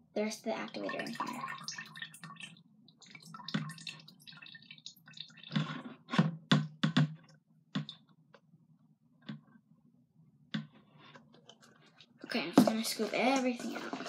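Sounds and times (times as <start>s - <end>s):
liquid drips and splashes: 0.5s - 6.1s
liquid trickling into a jug: 0.6s - 5.8s, 11.5s - 14.0s.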